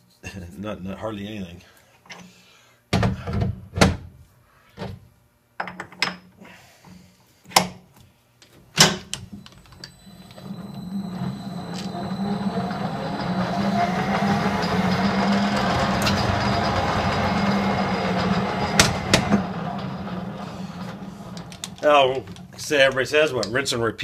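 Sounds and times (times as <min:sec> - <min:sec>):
lathe motor hum: 0:09.4 - 0:22.5.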